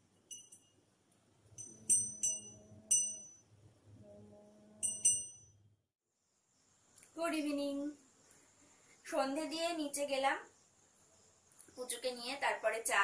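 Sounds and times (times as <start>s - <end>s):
faint steady low tone: 0.0s - 5.8s
small hand bell ringing: 0.3s - 0.8s, 1.6s - 3.5s, 4.8s - 5.6s.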